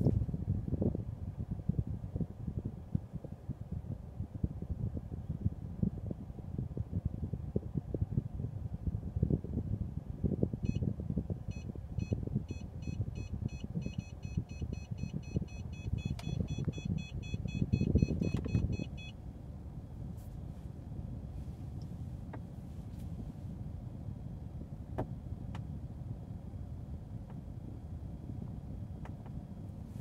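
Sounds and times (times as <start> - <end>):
low rumble of car: 0.0 - 30.0
parking sensor warning beeps: 11.5 - 19.2.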